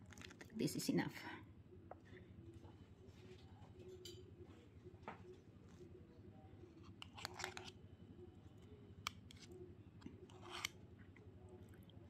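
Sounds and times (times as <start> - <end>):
spoon scraping mashed potatoes: 6.7 - 7.8, 9.0 - 11.1.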